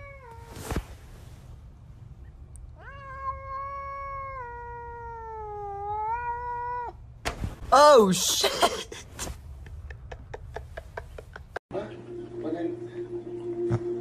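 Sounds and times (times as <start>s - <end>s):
cat yowling: 2.8s - 7.0s.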